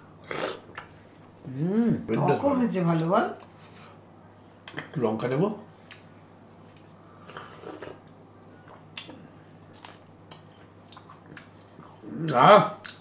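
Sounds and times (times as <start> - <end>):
person sipping: 7.1 - 8.0
quiet chewing: 9.8 - 12.1.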